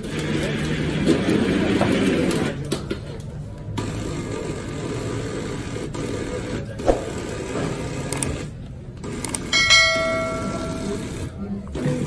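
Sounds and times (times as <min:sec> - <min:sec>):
background hubbub: 0:00.0 - 0:12.0
bright bell chime: 0:09.6 - 0:11.3.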